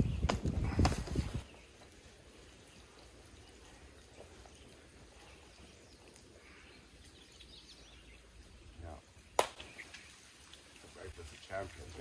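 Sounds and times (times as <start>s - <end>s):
faint bird calls: 2.6s - 11.1s.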